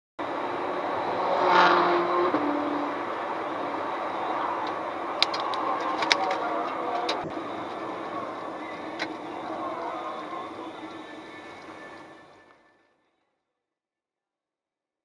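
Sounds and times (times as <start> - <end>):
car engine passing by: 0.2 - 12.2
car road and wind noise: 0.2 - 12.6.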